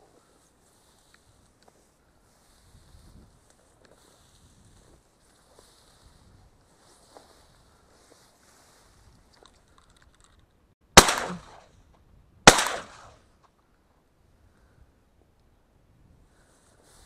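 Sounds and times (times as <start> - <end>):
shotgun shots echoing: 11.0 - 11.7, 12.4 - 13.2.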